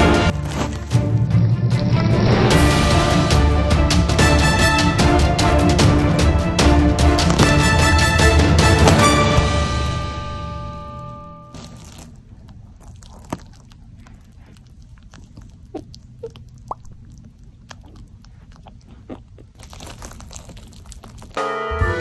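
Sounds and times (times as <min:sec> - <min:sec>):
rabbit chewing: 0:11.6 - 0:21.4.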